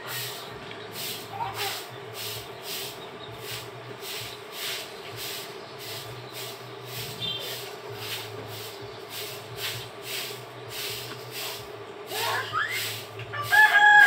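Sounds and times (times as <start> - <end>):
rhythmic swishing hiss: 0.0 - 14.0.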